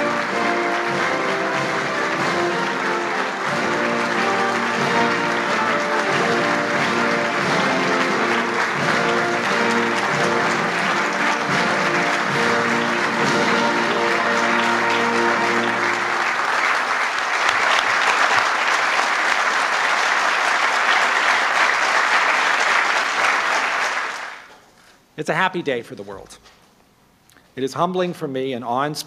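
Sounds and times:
background music with held notes: 0.0 - 16.8
audience applauding: 0.0 - 24.6.

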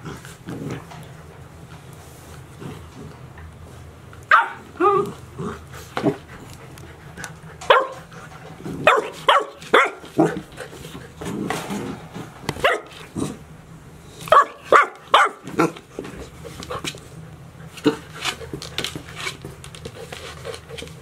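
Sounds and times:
puppies barking and yipping: 4.3 - 5.1.

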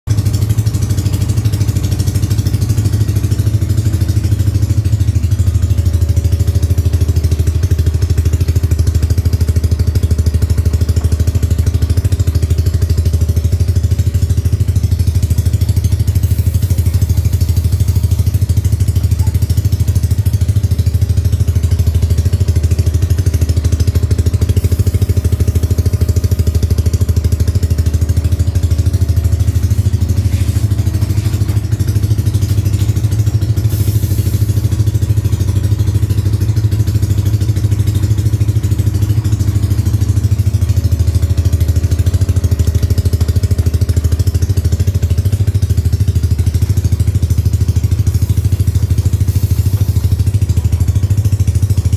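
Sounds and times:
scooter engine idling: 0.0 - 51.9.

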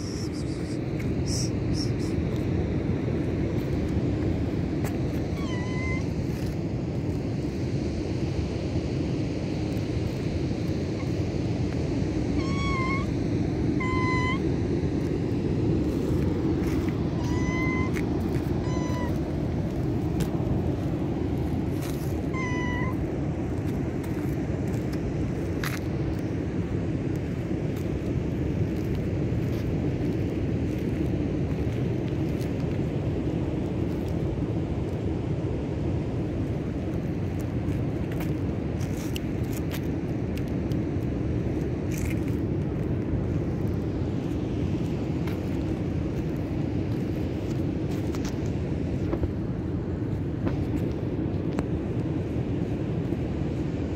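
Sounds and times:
cat meowing: 5.3 - 6.1, 12.4 - 13.1, 13.8 - 14.4, 17.2 - 18.0, 18.6 - 19.2, 22.2 - 23.0.

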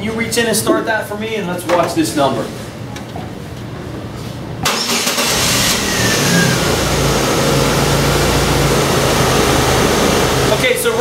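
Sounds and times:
car engine cranking and starting: 4.6 - 10.7
car engine idling: 4.8 - 11.0.

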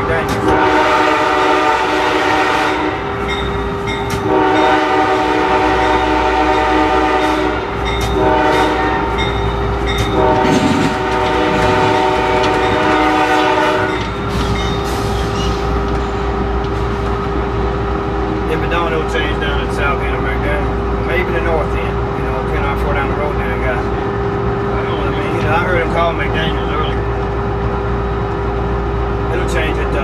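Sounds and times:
low locomotive rumble: 0.0 - 30.0
locomotive air horn blasts: 0.4 - 3.3, 4.2 - 9.2, 10.1 - 14.1.

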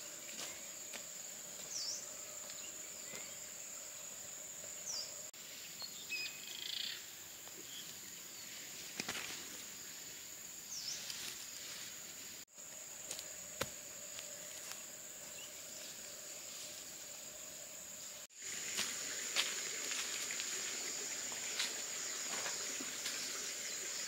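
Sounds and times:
high-pitched insect drone: 12.5 - 24.0.

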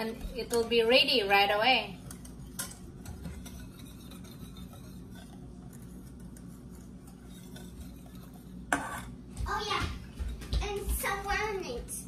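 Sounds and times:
metal whisk scraping a pan: 0.0 - 9.2
steady low hum: 0.0 - 12.0.

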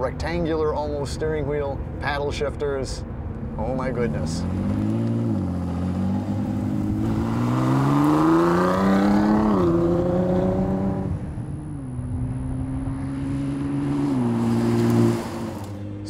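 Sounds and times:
sports car engine accelerating: 3.4 - 16.0.

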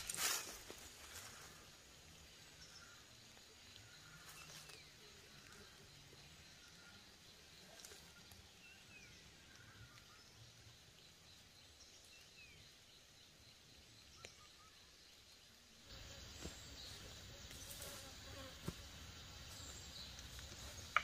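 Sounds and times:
steady hiss: 0.0 - 21.0
faint bird chirps: 0.2 - 18.5.

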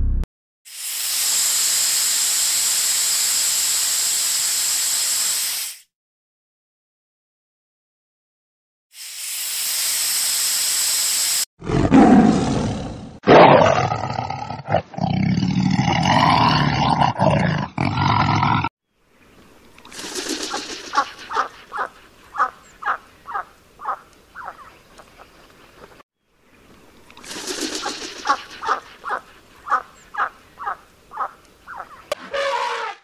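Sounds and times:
steady hiss: 0.7 - 5.8
lion roaring and growling: 11.6 - 18.7
chicken clucking: 20.5 - 24.7, 27.7 - 32.1.

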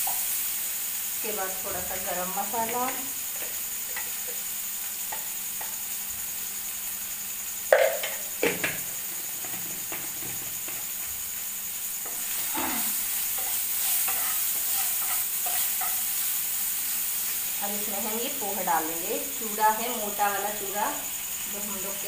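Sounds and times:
masala sizzling in a frying pan: 0.0 - 22.0
wooden spatula stirring pan: 12.0 - 16.3.

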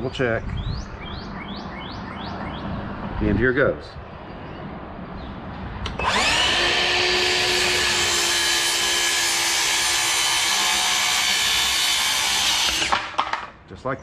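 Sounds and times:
circular saw whining: 5.9 - 13.2
saw cutting wood: 5.9 - 13.4.

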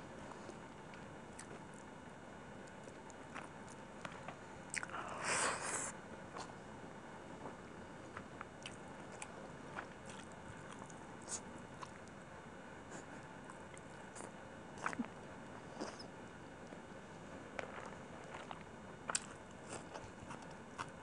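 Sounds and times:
chewing: 0.4 - 1.9, 2.6 - 5.0, 8.1 - 12.2, 12.9 - 16.8, 17.5 - 21.0.

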